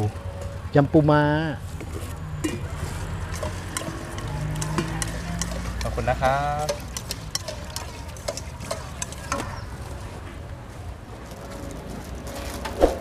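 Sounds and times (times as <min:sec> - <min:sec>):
outdoor background noise: 0:00.0 - 0:13.0
spoon clinking steel bowl: 0:02.4 - 0:09.7.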